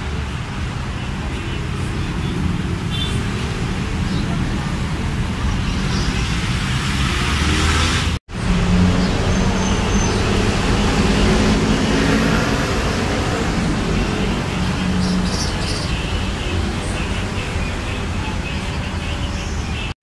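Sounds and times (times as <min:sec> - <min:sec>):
traffic noise: 0:00.0 - 0:20.0.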